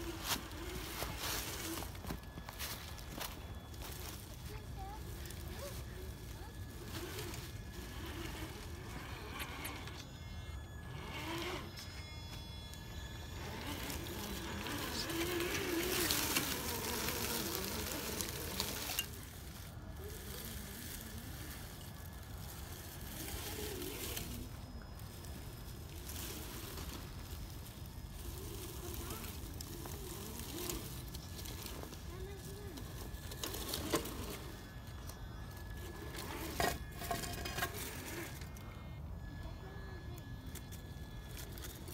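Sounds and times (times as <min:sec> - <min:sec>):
dry leaves crackling: 0:00.0 - 0:41.9
faint voices: 0:00.0 - 0:41.9.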